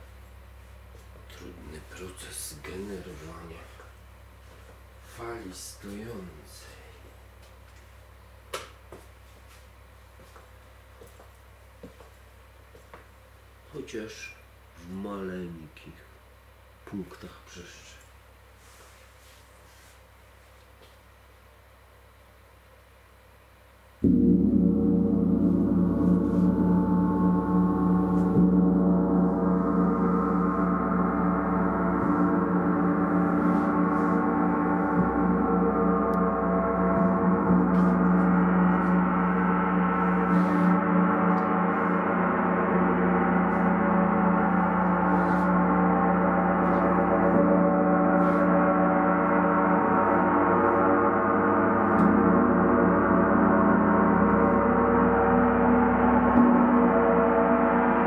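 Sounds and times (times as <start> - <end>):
gong ringing: 24.0 - 58.0.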